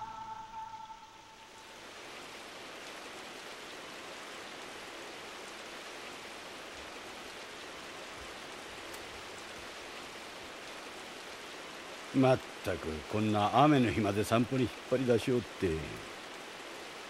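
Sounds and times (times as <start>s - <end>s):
steady rain falling: 0.0s - 17.0s.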